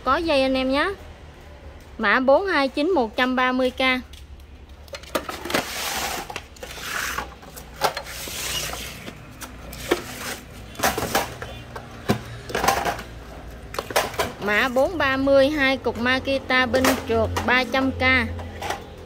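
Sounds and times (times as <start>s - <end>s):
plastic chargers clacking: 4.7s - 14.9s.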